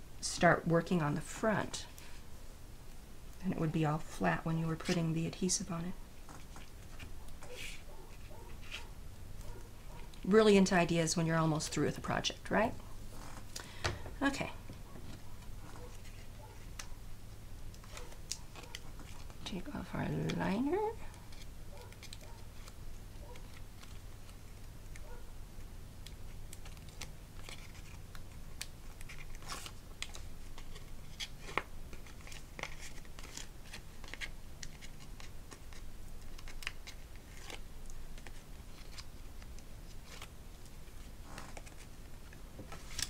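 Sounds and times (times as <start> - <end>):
low steady hum: 0.0 - 43.0
tape liner peeling rustles: 6.2 - 10.1, 14.8 - 43.0.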